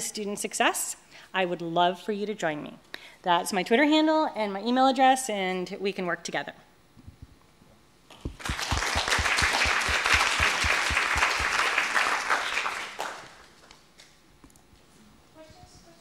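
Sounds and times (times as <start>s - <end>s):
audience applauding: 8.3s - 13.6s.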